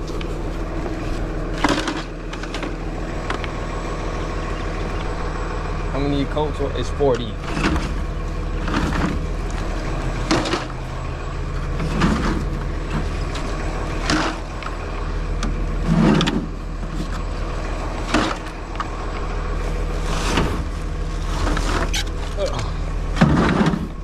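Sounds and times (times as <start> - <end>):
truck idling hum: 0.0 - 24.0.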